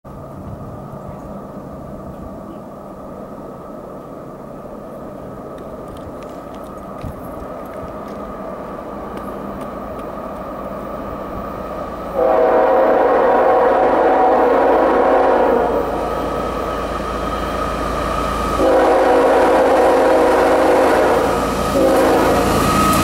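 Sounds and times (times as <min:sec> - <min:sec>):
locomotive rumble: 0:00.1 - 0:23.0
locomotive air horn: 0:12.2 - 0:16.0, 0:18.6 - 0:23.0.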